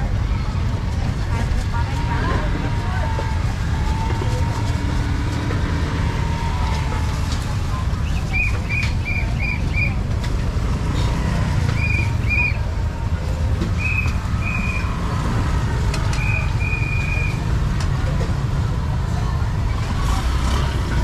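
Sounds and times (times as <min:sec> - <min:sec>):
traffic rumble: 0:00.0 - 0:21.0
high whistle-like peeps: 0:08.2 - 0:10.0, 0:11.7 - 0:12.6, 0:13.8 - 0:15.0, 0:16.2 - 0:17.4.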